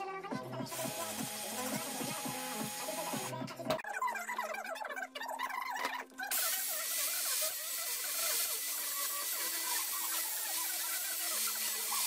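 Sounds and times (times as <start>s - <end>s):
angle grinder grinding steel: 0.7s - 3.4s, 6.3s - 12.0s.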